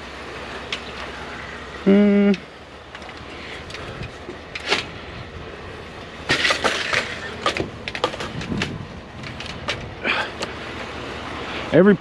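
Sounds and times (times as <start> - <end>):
scrap tubing clattering: 3.0 - 5.0, 6.2 - 10.5.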